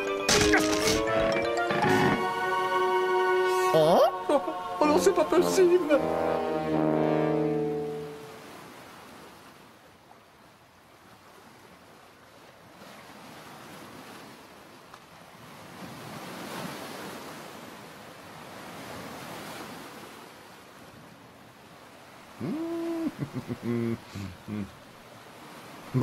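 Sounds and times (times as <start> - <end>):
ocean surf washing onto beach: 22.4 - 26.0.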